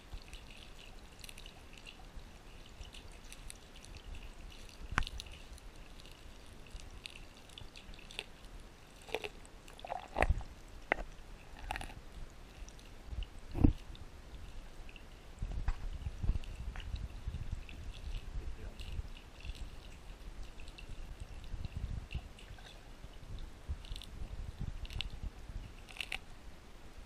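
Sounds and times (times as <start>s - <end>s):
underwater water noise: 0.0s - 27.0s
underwater clicks and pops: 9.9s - 12.0s.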